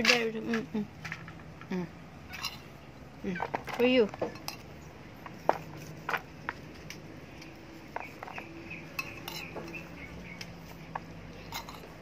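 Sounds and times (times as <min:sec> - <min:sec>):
metal spoon scraping plate: 0:02.3 - 0:02.8, 0:07.9 - 0:10.1, 0:11.3 - 0:12.0.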